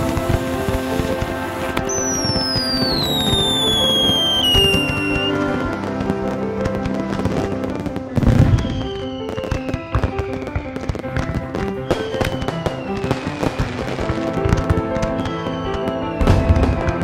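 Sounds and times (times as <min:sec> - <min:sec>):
background music: 0:00.0 - 0:17.0
fireworks banging and crackling: 0:00.0 - 0:17.0
deep firework boom: 0:08.1 - 0:10.8, 0:11.7 - 0:17.0.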